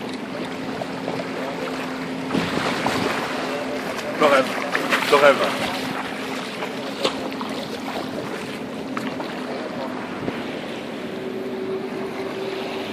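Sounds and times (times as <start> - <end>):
boat motor running: 0.0 - 12.9
engine hum: 0.0 - 12.9
water lapping at shore: 0.0 - 12.9
wind on microphone: 2.2 - 3.3, 9.9 - 12.9.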